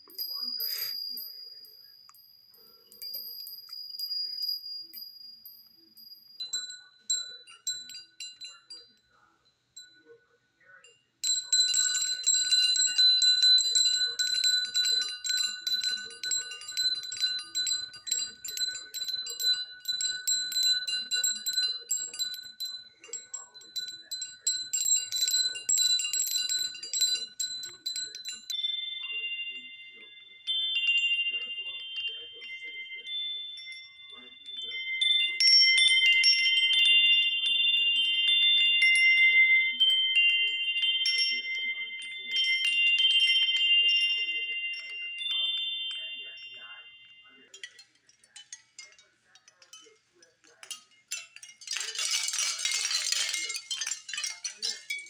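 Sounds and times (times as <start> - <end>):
lower wind chime ringing: 0.0 - 55.0
metal wind chime ringing: 0.0 - 55.0.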